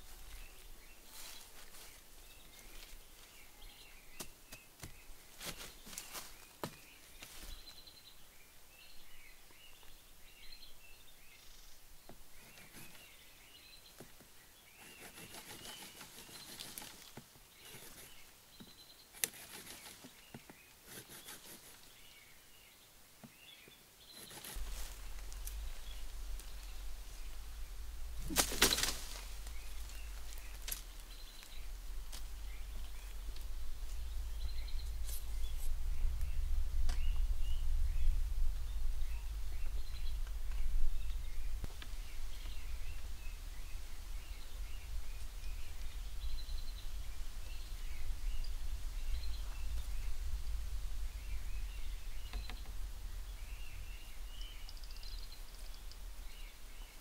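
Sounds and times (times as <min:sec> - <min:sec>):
dry bamboo leaves crackling: 0:00.0 - 0:03.5, 0:04.2 - 0:07.8, 0:15.0 - 0:18.1, 0:24.2 - 0:56.3
small birds chirping: 0:00.0 - 0:57.0
loud crackle: 0:24.2 - 0:33.6
steady low rumble: 0:24.6 - 0:56.9.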